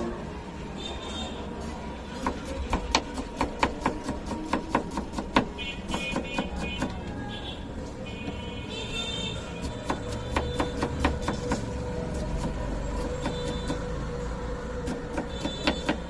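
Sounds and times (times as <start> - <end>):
knife slicing onion on board: 2.2 - 7.1, 9.6 - 13.9, 14.8 - 16.0.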